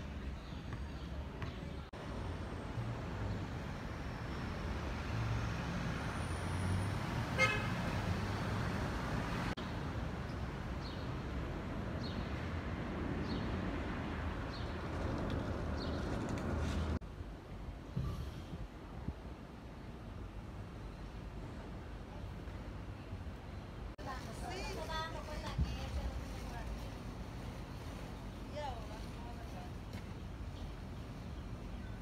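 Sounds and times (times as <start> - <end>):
rumble of passing vehicles: 1.1 - 32.0
car horn toot: 7.4 - 7.8.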